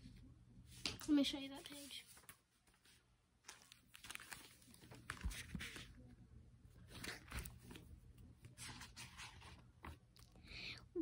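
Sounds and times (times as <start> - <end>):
paper and cover rustling: 0.8 - 6.0, 6.8 - 10.1.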